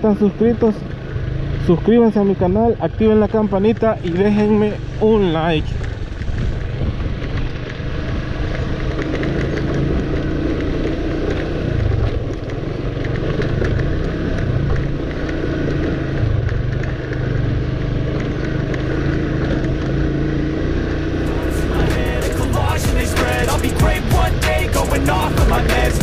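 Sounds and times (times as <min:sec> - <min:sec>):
motorcycle engine running: 0:00.0 - 0:26.0
wind and road rumble: 0:00.0 - 0:26.0.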